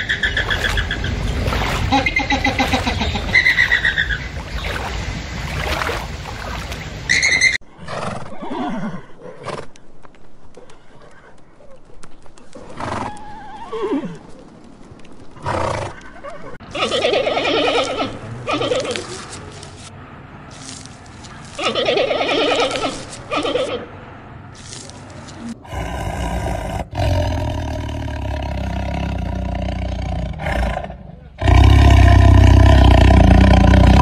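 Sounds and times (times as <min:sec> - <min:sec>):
flamingos calling: 0:00.0 - 0:07.6
horses whinnying: 0:15.4 - 0:19.2, 0:21.6 - 0:23.9.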